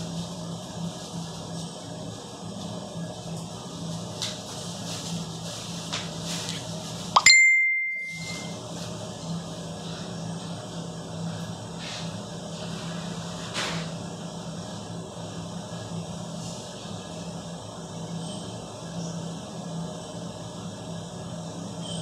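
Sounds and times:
low machine hum: 0.0 - 22.0
sharp high ding: 7.2 - 8.6.

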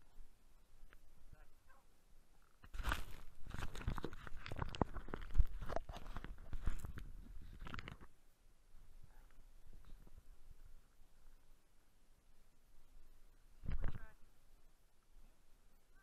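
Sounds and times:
camera handled in snow: 2.6 - 8.1.

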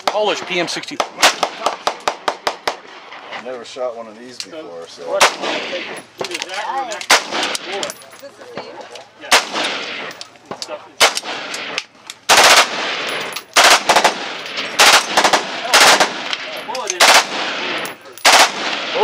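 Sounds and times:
automatic gunfire: 1.0 - 2.8, 5.2 - 5.8, 7.1 - 7.8, 9.3 - 10.1, 11.0 - 19.0.

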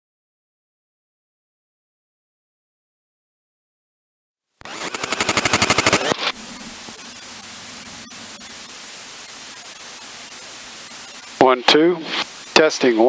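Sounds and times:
aircraft engine starting: 4.6 - 9.3
steady hiss: 4.7 - 13.0.

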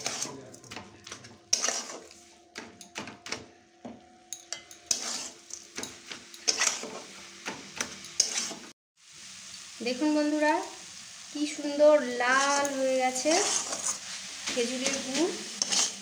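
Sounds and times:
metal spatula scraping a pan: 0.0 - 2.9, 4.3 - 8.7, 12.1 - 16.0.

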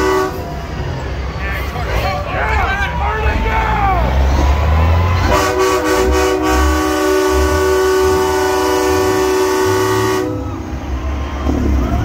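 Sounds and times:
truck air horn blast: 0.0 - 0.7, 5.2 - 10.7
truck engine rumble: 0.0 - 12.0.

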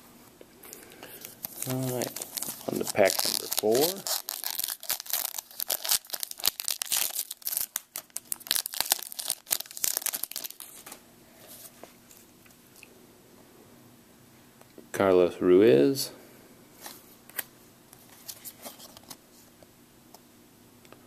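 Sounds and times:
wrapper tearing and crinkling: 1.4 - 11.0.

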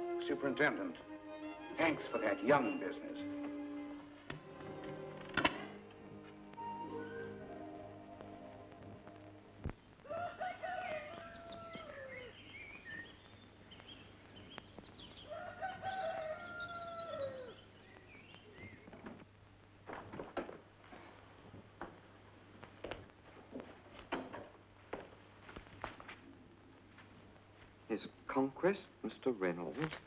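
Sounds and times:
small birds chirping: 9.6 - 19.1
rooster crowing: 10.0 - 12.4, 15.3 - 17.6.

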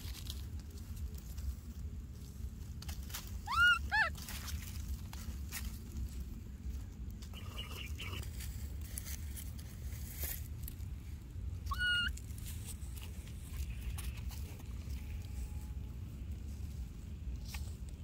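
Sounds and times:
crackling on dry grass: 0.0 - 18.0
baby monkey squealing: 3.5 - 4.1, 11.7 - 12.2.

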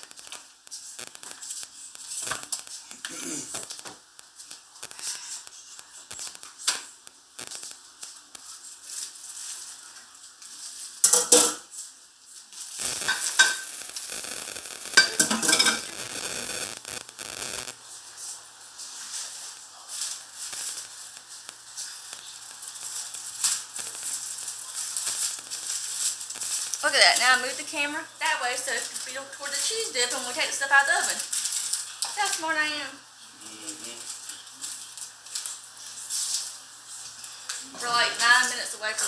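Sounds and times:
steady hiss: 0.0 - 39.0
dishes and utensils clattering: 11.0 - 11.7, 15.0 - 15.9.

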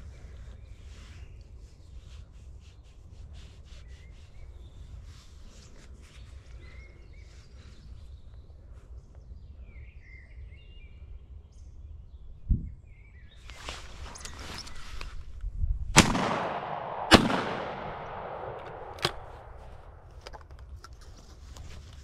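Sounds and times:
wind rumble on microphone: 0.0 - 16.1.

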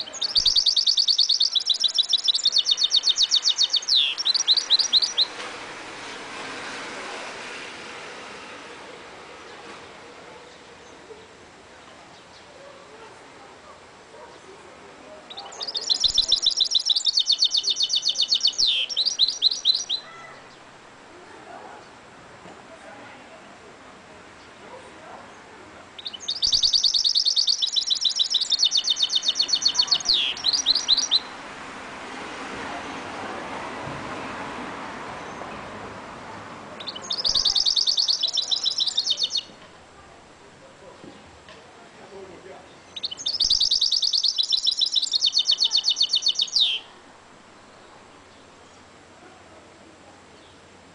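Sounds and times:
finch singing trilled notes: 0.0 - 5.4, 15.3 - 20.6, 26.0 - 31.4, 36.8 - 39.6, 42.7 - 46.9
faint steady rush: 2.0 - 16.4, 28.4 - 43.4.

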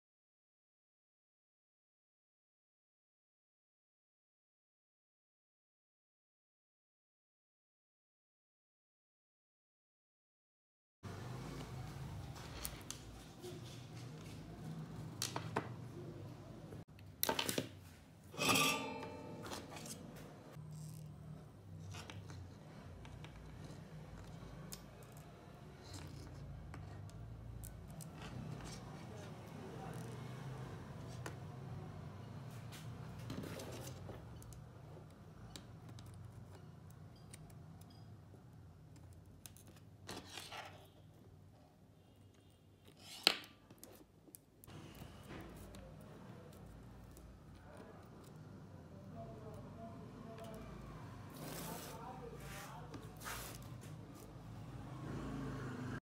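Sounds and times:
scratchy rustle: 51.3 - 54.3.

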